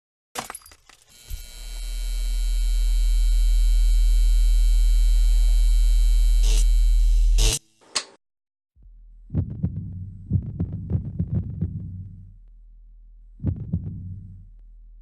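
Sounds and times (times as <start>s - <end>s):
low mains buzz: 1.1s - 7.6s.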